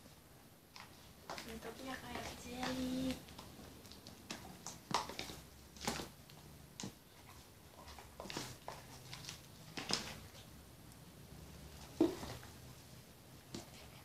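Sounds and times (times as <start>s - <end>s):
plastic bottles tapping: 11.8s - 12.5s.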